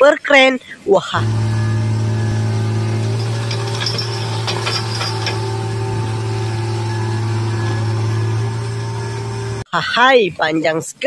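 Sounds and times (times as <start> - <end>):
diesel engine droning: 1.2 - 9.7
rattling clicks: 2.9 - 5.8.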